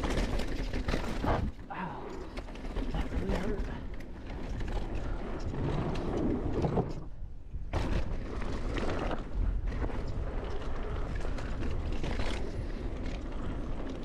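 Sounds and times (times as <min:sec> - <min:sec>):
mountain bike rattle and clatter: 0:00.0 - 0:14.0.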